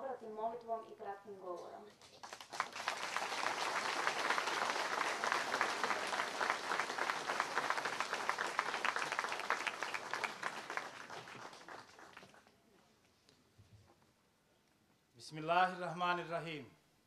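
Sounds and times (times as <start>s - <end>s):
crowd applauding: 2.1s - 12.6s.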